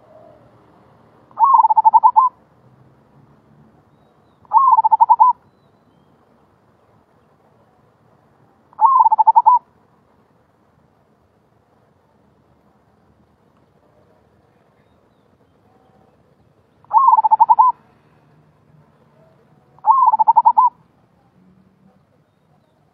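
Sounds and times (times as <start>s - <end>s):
dove trilled cooing: 0.0s - 0.5s, 1.4s - 2.4s, 4.4s - 5.4s, 8.8s - 9.6s, 16.8s - 17.8s, 19.2s - 20.8s.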